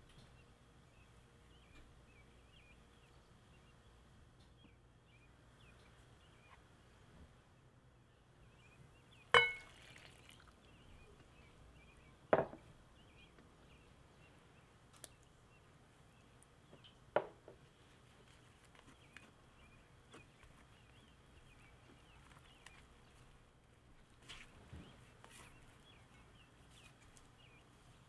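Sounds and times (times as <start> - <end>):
faint bird chirping: 0.0 - 28.0
glass clinking against glass bowl: 9.4 - 9.7.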